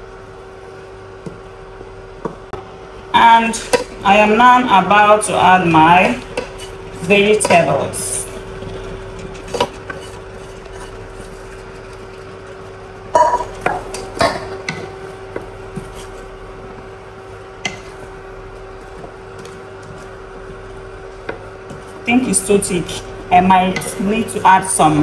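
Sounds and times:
steady hum: 0.0 - 25.0
wooden spatula stirring thick soup: 3.6 - 24.4
pot and utensils knocking and clinking: 13.1 - 15.0.

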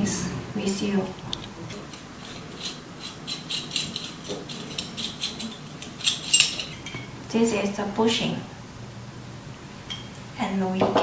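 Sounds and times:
metal parts scraping and clicking: 1.3 - 7.0.

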